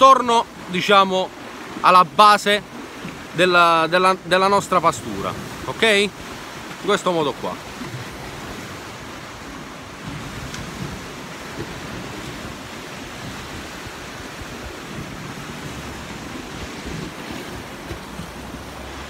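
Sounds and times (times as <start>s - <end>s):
sea surf: 0.0s - 19.0s
wind buffeting microphone: 7.6s - 19.0s.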